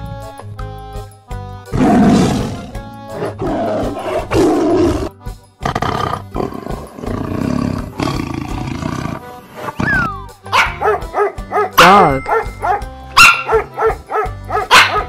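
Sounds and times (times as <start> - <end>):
background music: 0.0 - 15.0
tiger roaring: 1.7 - 10.0.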